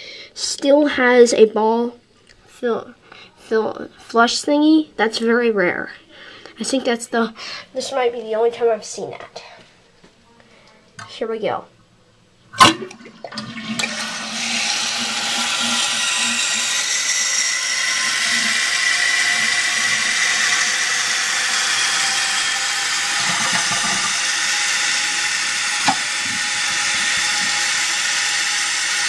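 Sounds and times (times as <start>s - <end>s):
toilet flushing: 12.5s - 29.0s
toilet tank refilling: 12.5s - 29.0s.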